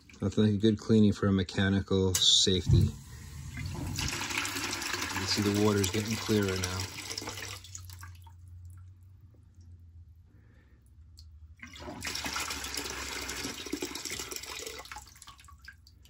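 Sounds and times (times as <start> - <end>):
water draining into plastic bucket: 2.5 - 8.8, 11.6 - 16.0.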